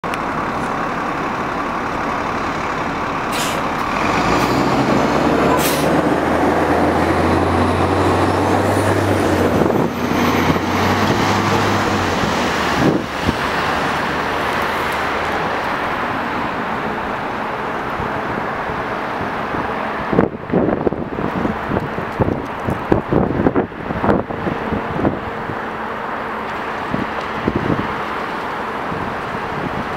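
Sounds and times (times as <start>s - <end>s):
electric bus drive hum: 0.0s - 29.9s
street traffic noise: 0.0s - 29.9s
air brake hisses: 3.3s - 3.7s, 5.5s - 6.0s
wind buffeting microphone: 3.6s - 29.9s.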